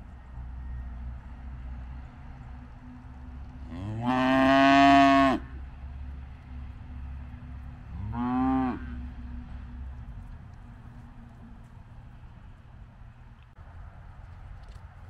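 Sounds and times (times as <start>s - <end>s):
cattle mooing: 3.6s - 5.6s, 7.9s - 9.1s.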